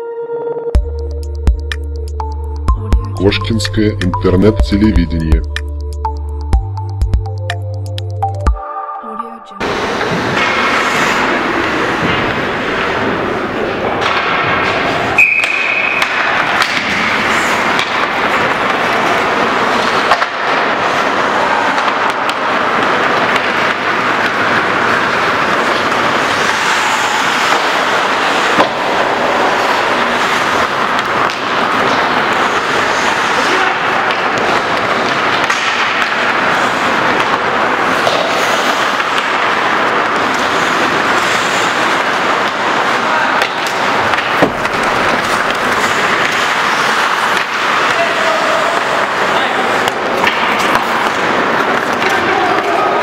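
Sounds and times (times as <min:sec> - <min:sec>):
echoing arena noise: 0:09.2 - 0:53.0
skates scraping ice: 0:09.8 - 0:53.0
stick and puck clacks: 0:10.0 - 0:53.0
referee's whistle: 0:15.2 - 0:16.0.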